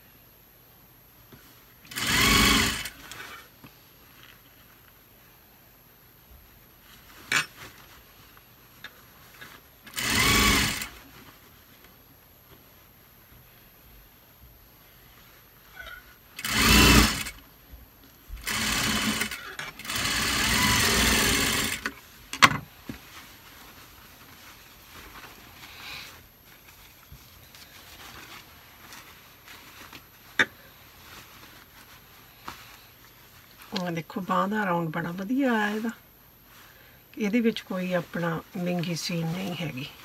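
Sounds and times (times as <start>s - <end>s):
sewing machine stitching: 1.9s - 3.3s, 9.9s - 11.0s, 16.4s - 17.4s, 18.4s - 22.0s.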